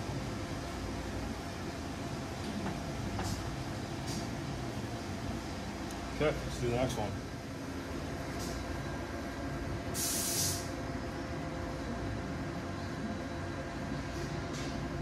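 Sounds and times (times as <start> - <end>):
workshop background hum: 0.0 - 15.0
short hiss burst: 9.9 - 10.7.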